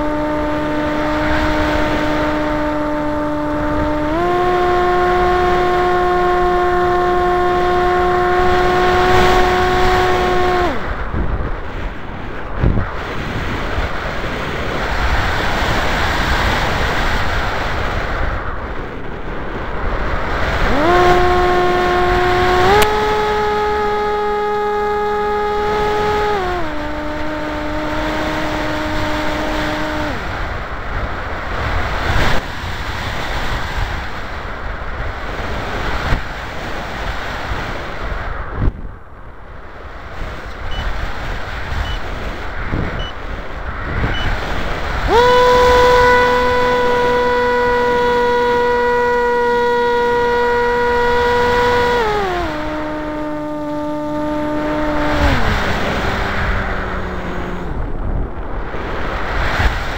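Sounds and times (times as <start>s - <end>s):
motor and propeller hum: 0.0s - 59.9s.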